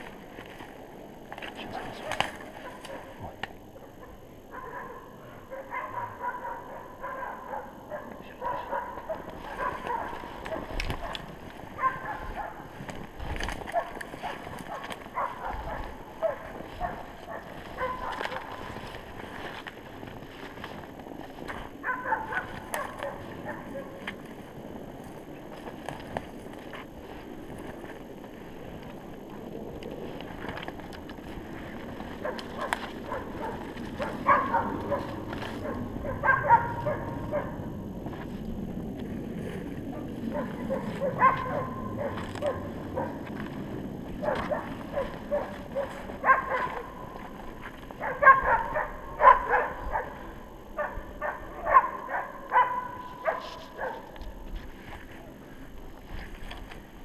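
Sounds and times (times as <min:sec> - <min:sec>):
dog barking: 0:01.7 - 0:03.3, 0:03.9 - 0:12.8, 0:13.6 - 0:18.8, 0:21.8 - 0:24.1, 0:32.2 - 0:37.7, 0:39.9 - 0:43.3, 0:44.2 - 0:47.2, 0:48.0 - 0:54.2
footsteps crunching through snow: 0:08.7 - 0:50.0, 0:52.5 - 0:57.0.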